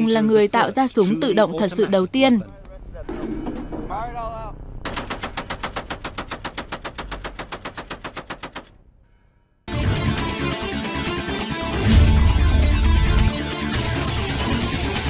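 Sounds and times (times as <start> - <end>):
heavy machine gun firing burst: 4.9 - 8.6.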